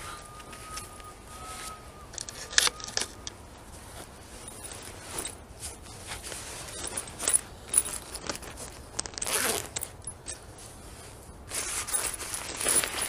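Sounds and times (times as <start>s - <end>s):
footsteps crunching through dry leaves: 11.5s - 13.0s.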